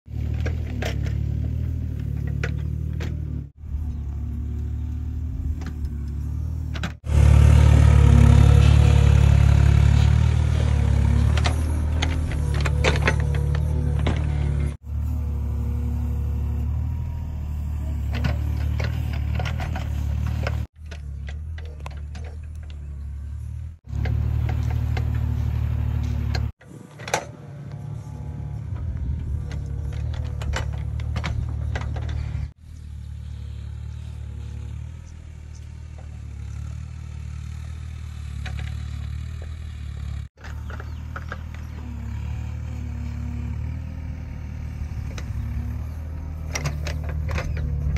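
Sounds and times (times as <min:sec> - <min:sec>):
excavator engine running: 0:00.1 - 0:47.9
clicks and knocks from excavator arm: 0:46.3 - 0:47.9.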